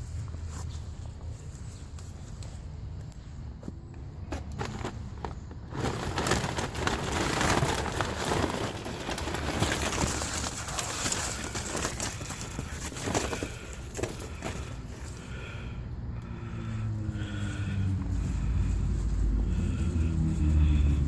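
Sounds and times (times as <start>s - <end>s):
paper bag crinkling: 4.3s - 15.2s
twigs cracking and snapping: 4.3s - 15.3s.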